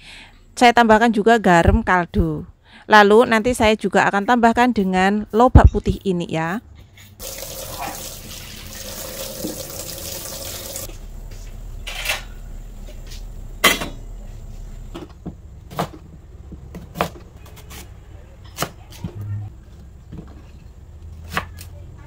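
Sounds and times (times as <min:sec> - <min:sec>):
tap water running into sink: 0:07.2 - 0:10.9.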